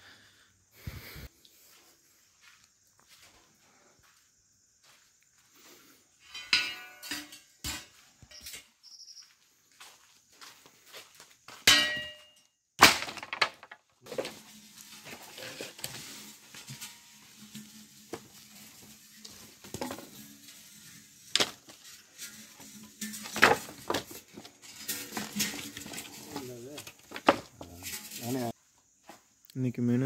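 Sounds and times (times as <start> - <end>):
metallic clang: 6.3 - 8.7, 11.7 - 12.4
wooden logs clattering: 12.8 - 28.6.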